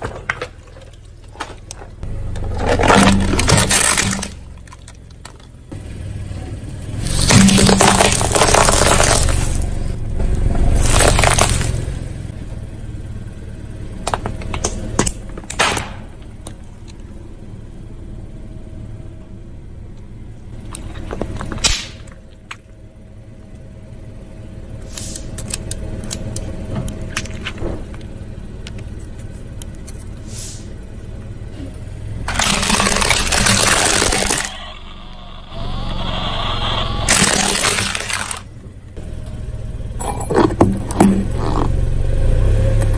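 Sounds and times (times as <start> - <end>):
tyre crushing objects: 0.0 - 5.5, 7.0 - 9.8, 10.8 - 11.9, 32.3 - 34.6, 37.1 - 38.5, 40.0 - 41.7
low engine rumble: 0.0 - 42.9
sharp cracks and pops: 2.6 - 5.6, 14.0 - 17.0, 20.6 - 22.7, 32.3 - 34.6, 37.0 - 38.5.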